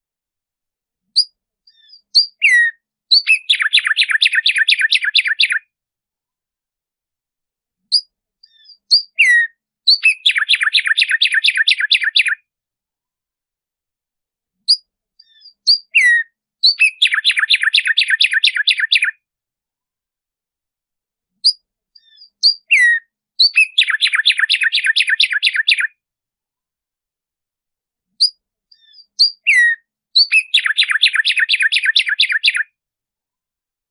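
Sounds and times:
sparrow singing: 1.0 - 5.7, 7.9 - 12.4, 14.6 - 19.2, 21.4 - 26.0, 28.2 - 32.8.

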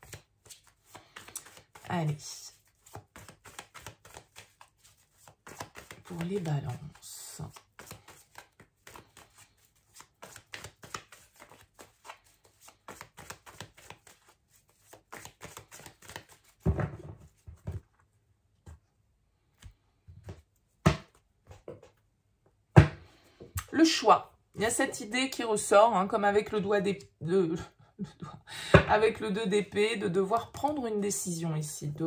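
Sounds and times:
cards being shuffled: 0.0 - 17.9.

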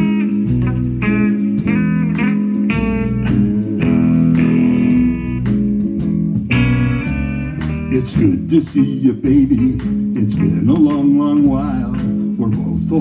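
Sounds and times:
drums steady beat: 0.0 - 13.0
electric guitar lines: 0.0 - 13.0.

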